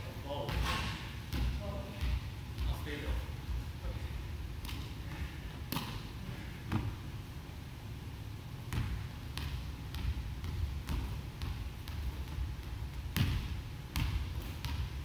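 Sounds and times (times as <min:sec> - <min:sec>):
ball bouncing on wooden floor: 0:08.7 - 0:15.0.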